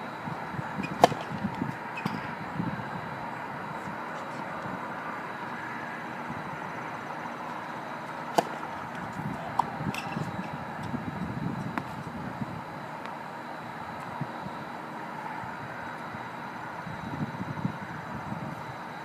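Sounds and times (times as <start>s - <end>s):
steady background hum: 0.0s - 19.0s
shoe scuffs on hard court: 0.8s - 2.2s, 8.3s - 10.5s
tennis ball struck by racket: 0.8s - 2.3s, 8.1s - 10.5s.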